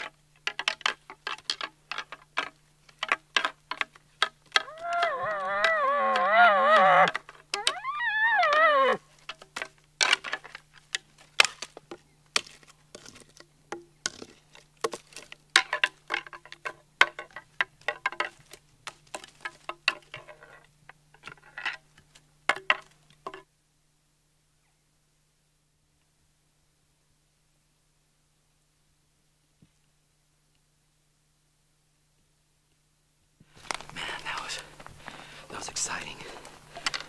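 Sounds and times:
antlers rattling together: 0.0s - 21.8s
elk call moaning bugle: 4.5s - 9.0s.

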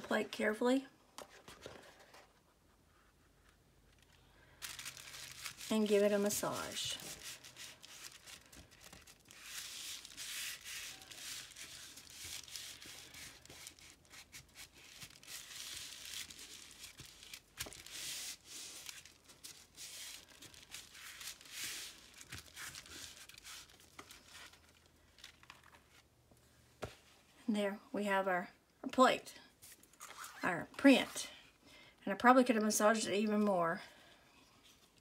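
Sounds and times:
hands rubbing damp paper: 4.6s - 24.6s.

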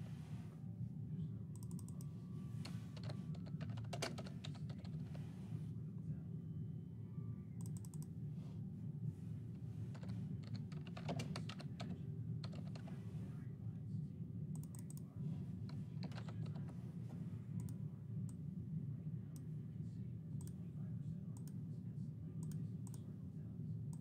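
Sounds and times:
low background hum: 0.0s - 24.0s
typing on computer keyboard: 3.0s - 5.0s, 10.0s - 12.8s, 16.0s - 16.6s.

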